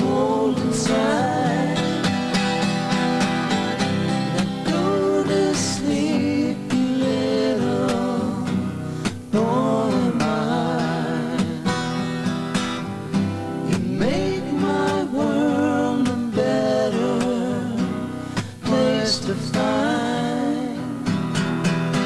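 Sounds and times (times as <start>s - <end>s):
man singing: 0.0s - 2.6s, 4.2s - 12.1s, 13.6s - 21.3s
strummed acoustic guitar: 0.0s - 22.0s.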